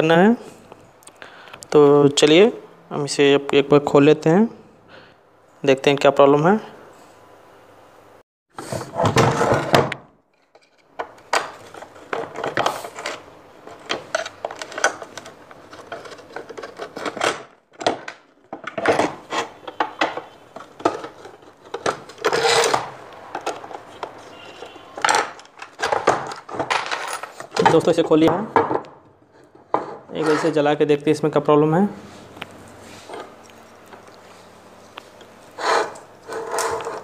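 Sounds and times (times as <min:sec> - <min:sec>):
metal housing clinks and knocks: 0:25.0 - 0:27.9.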